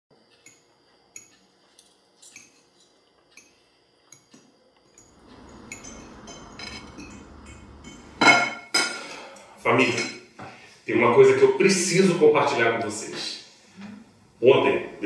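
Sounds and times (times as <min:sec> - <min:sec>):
low background noise: 0:00.2 - 0:15.0
cutlery clinking on plates: 0:00.3 - 0:10.3.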